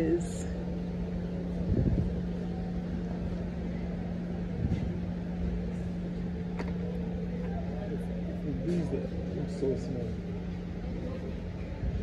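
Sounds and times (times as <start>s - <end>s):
faint rumble: 0.0s - 9.3s
constant droning tone: 0.0s - 12.0s
steady low hum: 0.0s - 12.0s.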